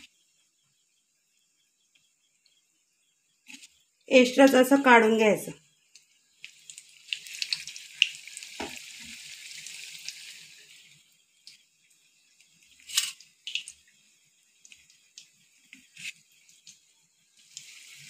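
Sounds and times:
egg sizzling in hot oil: 5.7s - 18.0s.

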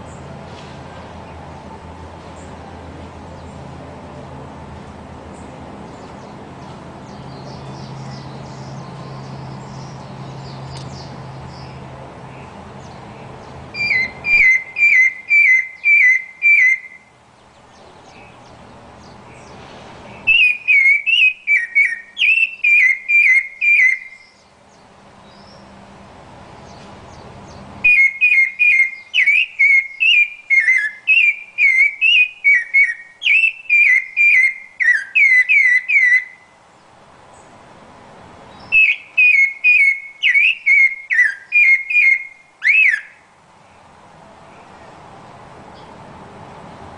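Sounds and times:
thrush singing whistled notes: 13.7s - 25.8s, 26.6s - 36.6s, 38.5s - 43.3s.

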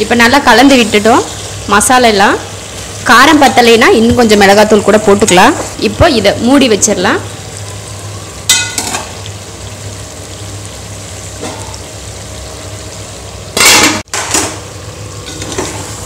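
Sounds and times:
food sizzling in a pot: 0.0s - 16.0s
metal utensil clanking on pot: 8.5s - 9.1s.

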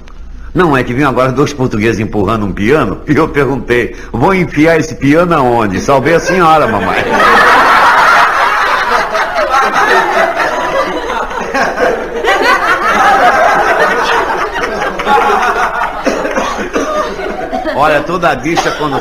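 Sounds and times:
audience laughing: 6.3s - 19.0s.

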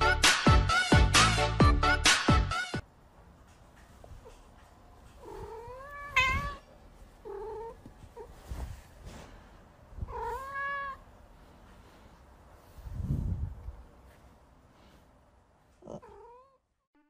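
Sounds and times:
cat meowing: 5.2s - 8.3s, 10.0s - 11.1s, 15.8s - 16.6s.

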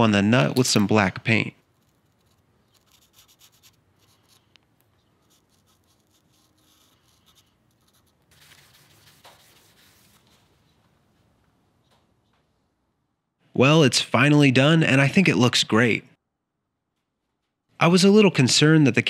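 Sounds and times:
marker tip scratching metal: 1.7s - 4.5s, 5.1s - 9.9s
cloth rubbing on metal: 5.4s - 10.8s.

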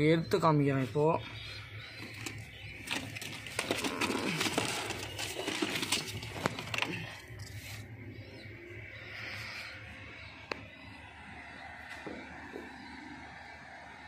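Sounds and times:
pigeon scuffling: 0.8s - 8.0s.

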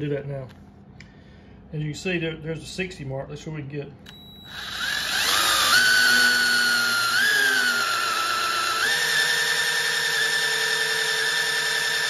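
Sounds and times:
drill motor whine: 4.3s - 12.0s.

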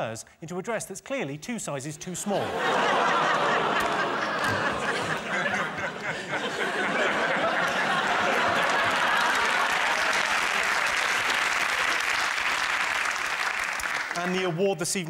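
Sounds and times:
audience laughing: 2.0s - 12.3s
applause: 3.8s - 4.9s, 7.4s - 14.6s.

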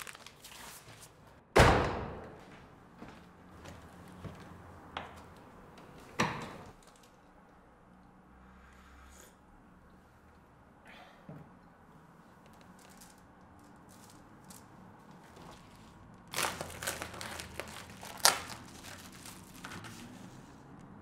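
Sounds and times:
foil mailer crinkling: 0.0s - 1.0s, 15.3s - 20.4s.

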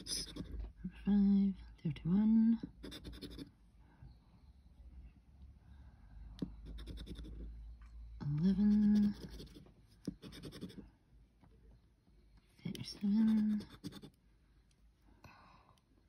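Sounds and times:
scratchcard scraping: 0.0s - 0.6s, 2.7s - 3.5s, 6.5s - 7.4s, 8.5s - 10.8s, 13.1s - 14.2s.

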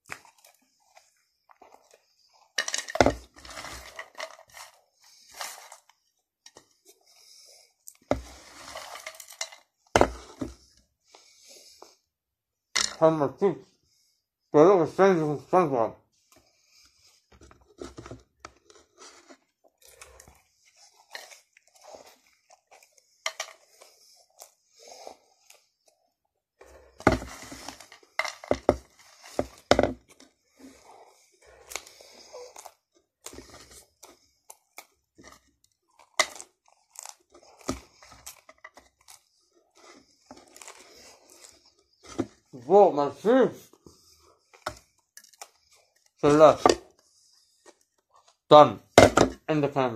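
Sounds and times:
person chewing crunchy food: 0.0s - 2.6s, 18.6s - 27.1s, 28.8s - 42.6s, 43.7s - 46.2s, 46.8s - 48.5s.

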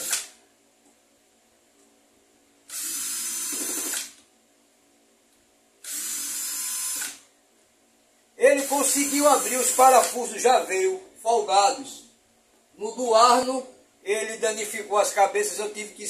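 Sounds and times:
cordless screwdriver running: 2.7s - 4.2s, 5.8s - 7.2s, 8.7s - 10.2s.

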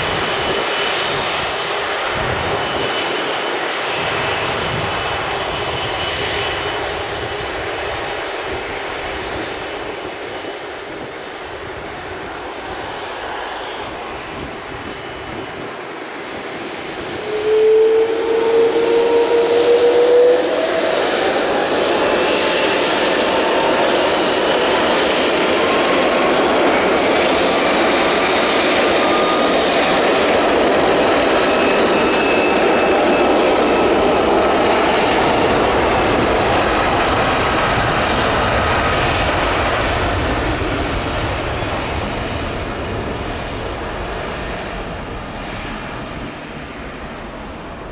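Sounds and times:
jet engines running: 0.0s - 47.9s
high engine whine rising: 2.5s - 37.9s.

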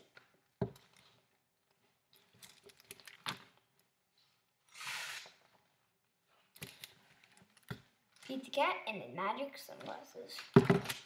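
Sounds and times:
page turning swish: 4.7s - 5.4s.

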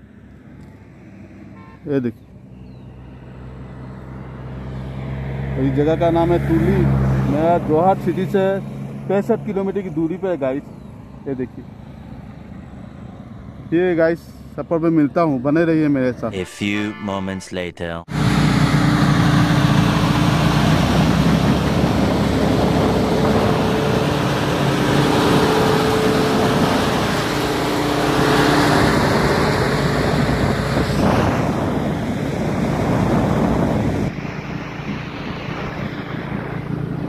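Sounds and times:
crusher machinery grinding drone: 18.1s - 37.0s.

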